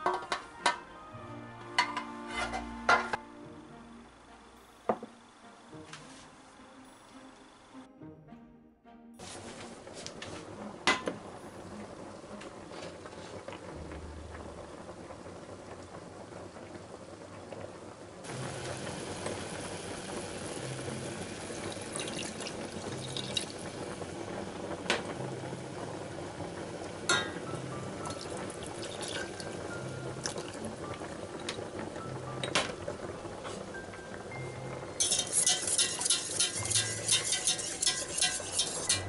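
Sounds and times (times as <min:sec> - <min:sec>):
quiet background music: 0:00.0 - 0:39.0
liquid pouring into saucepan: 0:20.3 - 0:24.9, 0:27.9 - 0:31.7.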